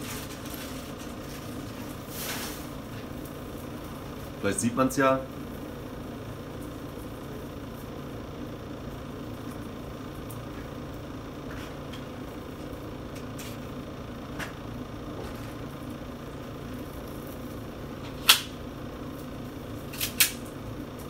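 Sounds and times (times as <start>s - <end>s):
low background hum: 0.0s - 21.0s.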